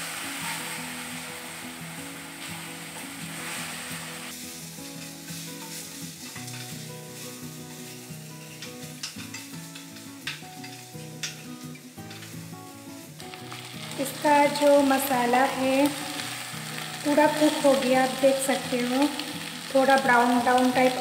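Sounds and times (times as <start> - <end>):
masala and potatoes sizzling in a pan: 0.0 - 21.0
spatula tapping and scraping pan: 5.0 - 12.4.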